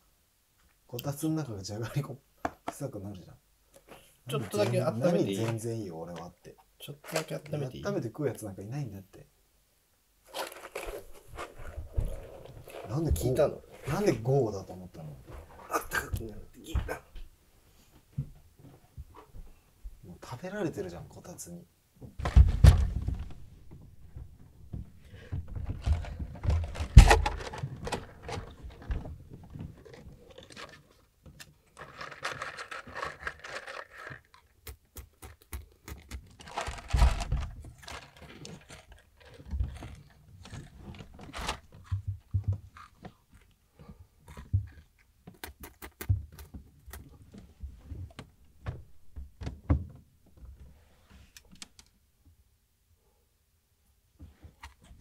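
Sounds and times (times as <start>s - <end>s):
paper cup clicks and rustling: 10.3s - 13.0s, 25.6s - 29.0s, 29.7s - 42.0s
crunching of snack sticks chewed: 31.6s - 37.2s, 42.8s - 43.6s.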